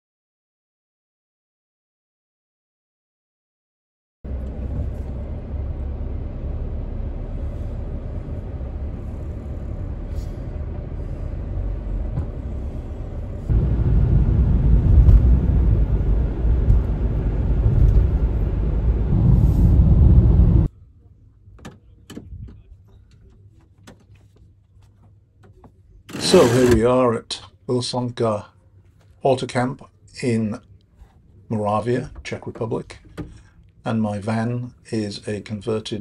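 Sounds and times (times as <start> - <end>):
road vehicle rumble: 4.3 - 26.9.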